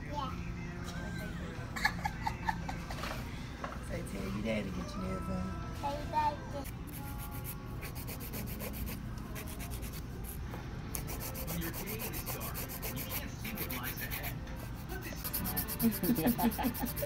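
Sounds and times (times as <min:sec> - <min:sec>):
nail file scraping nails: 0:06.7 - 0:10.0, 0:11.0 - 0:17.0.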